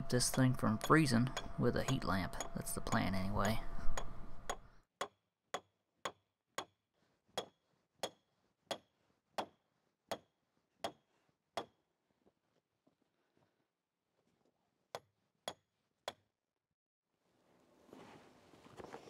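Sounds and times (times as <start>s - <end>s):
hammer striking steel stake: 0.0s - 4.6s.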